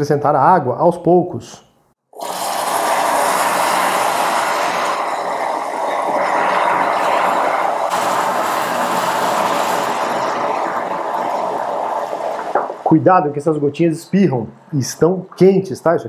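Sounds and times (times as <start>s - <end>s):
caramel sizzling and spattering: 2.2s - 13.0s.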